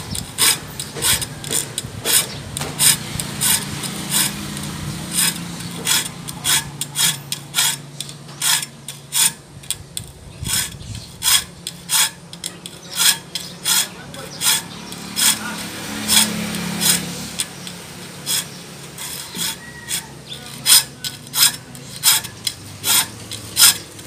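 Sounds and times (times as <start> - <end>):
file strokes on saw teeth: 0.4 - 7.8, 10.4 - 23.9.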